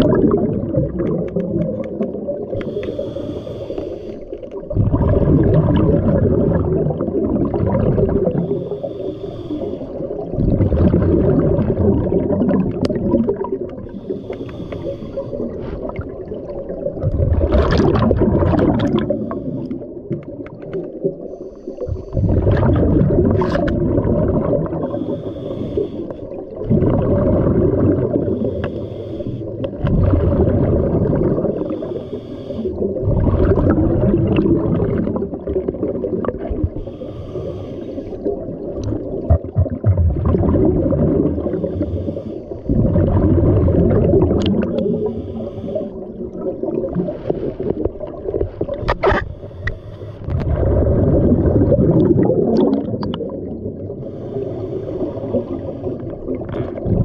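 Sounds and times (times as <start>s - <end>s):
exhaled bubbles gurgling underwater: 0.0s - 57.0s
hissing regulator inhalations: 2.6s - 4.5s, 8.3s - 10.2s, 13.8s - 15.8s, 21.2s - 22.4s, 24.9s - 26.4s, 28.4s - 29.7s, 31.5s - 32.8s, 36.7s - 38.3s, 41.5s - 42.8s, 44.7s - 46.2s, 49.2s - 50.4s, 54.0s - 56.2s.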